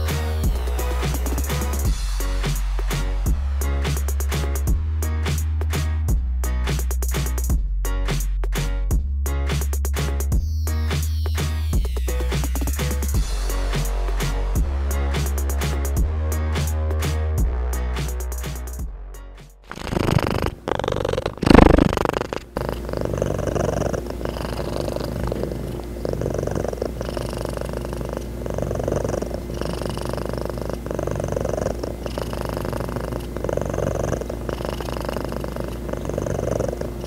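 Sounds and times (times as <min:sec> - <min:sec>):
cat purring: 0:19.7 - 0:37.0
rustling and bumps on microphone: 0:21.4 - 0:22.0.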